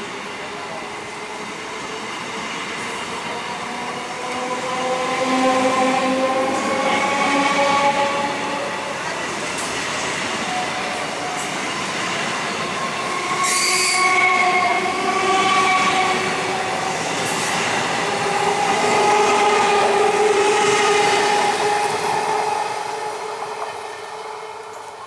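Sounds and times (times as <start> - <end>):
train wheels squealing: 12.6 - 25.0.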